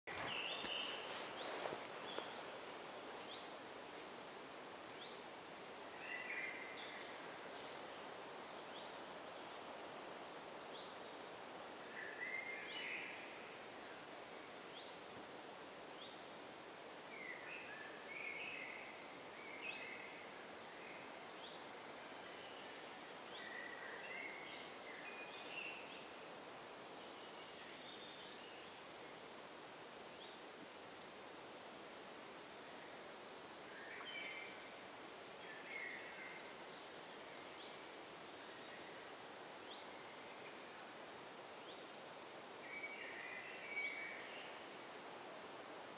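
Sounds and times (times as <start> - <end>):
songbirds chirping and whistling: 0.1 - 3.5
faint background hiss: 0.1 - 45.9.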